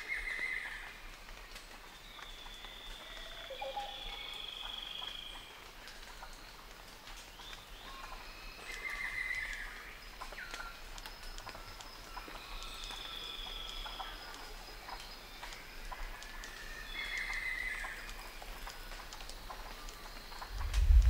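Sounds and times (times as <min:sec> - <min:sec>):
insects calling: 0:01.7 - 0:21.0.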